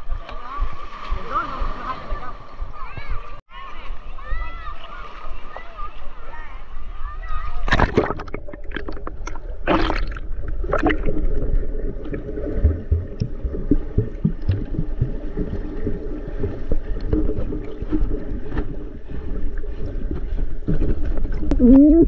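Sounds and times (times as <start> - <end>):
underwater rush of water: 0.0 - 22.0
splash into water: 7.6 - 18.8.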